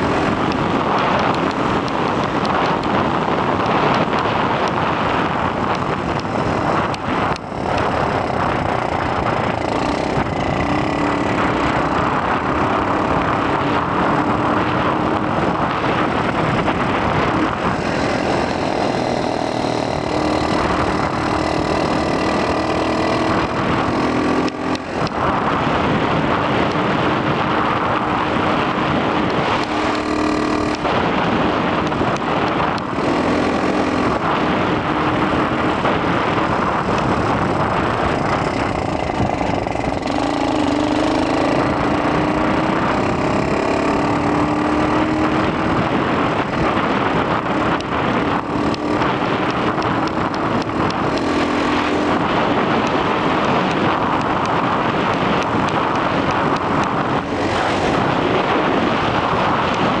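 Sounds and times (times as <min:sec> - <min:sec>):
pocket bike two-stroke engine: 0:00.0 - 1:00.0
wind noise on microphone: 0:00.0 - 1:00.0.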